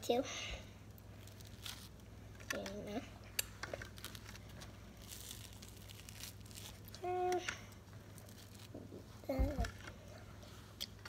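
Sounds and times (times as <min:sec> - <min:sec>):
toast crackling and tearing: 0:00.9 - 0:02.1, 0:03.4 - 0:07.4, 0:08.1 - 0:08.8.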